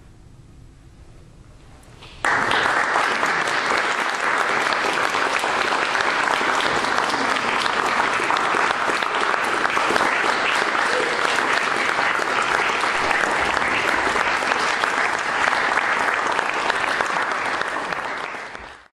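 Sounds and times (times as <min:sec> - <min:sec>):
audience applauding: 0:02.2 - 0:18.9.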